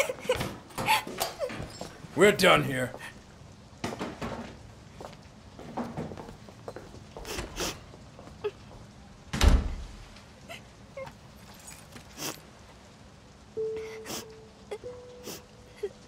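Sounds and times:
door shutting with heavy thud: 0:09.3 - 0:10.0.

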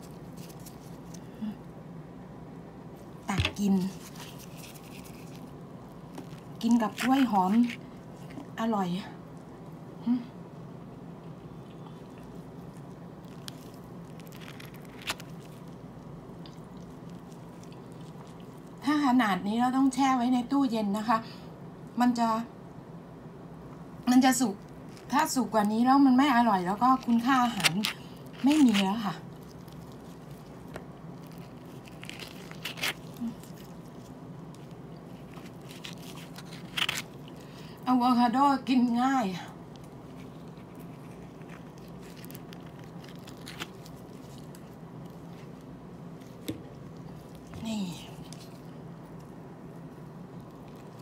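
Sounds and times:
steady low hum: 0:00.0 - 0:51.0
spoon scraping avocado: 0:03.3 - 0:08.5.

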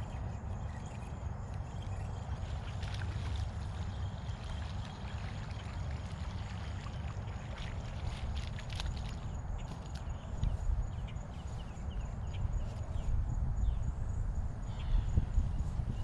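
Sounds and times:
faint high insect whine: 0:00.0 - 0:16.0
fish splashing in water: 0:02.1 - 0:10.3.

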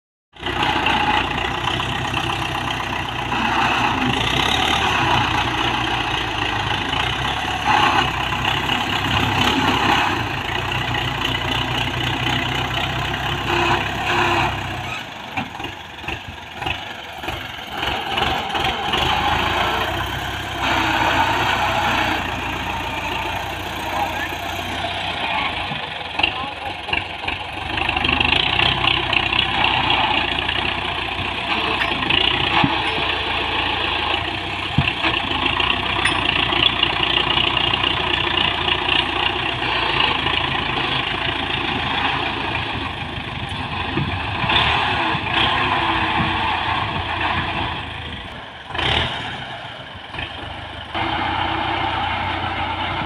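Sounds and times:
tractor diesel engine running: 0:00.3 - 0:53.0
loader pushing loose dirt: 0:00.4 - 0:53.0.

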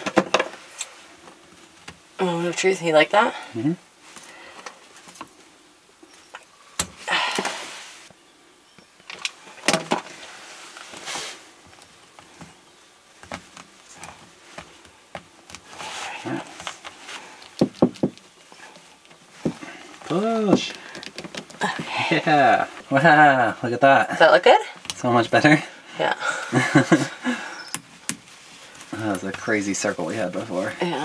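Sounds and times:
plastic tubing scraping and rustling: 0:13.2 - 0:21.8
plastic clicks and knocks: 0:17.5 - 0:18.3, 0:20.5 - 0:21.6.

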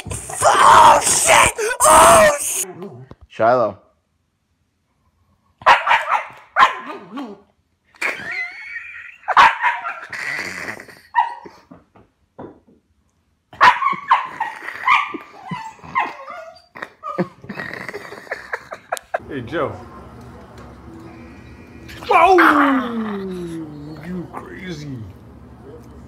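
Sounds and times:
dog barking and yipping: 0:05.6 - 0:07.3, 0:09.2 - 0:10.1, 0:11.1 - 0:11.6, 0:13.5 - 0:16.7.

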